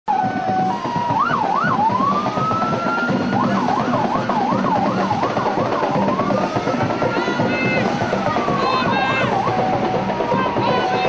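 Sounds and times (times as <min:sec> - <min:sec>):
electronic siren: 0:00.1 - 0:11.0
traffic noise: 0:00.1 - 0:11.0.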